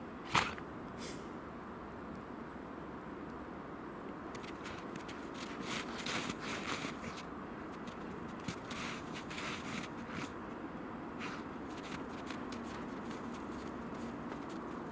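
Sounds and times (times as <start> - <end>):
dog scuffing in snow: 4.5 - 10.4, 11.2 - 14.9.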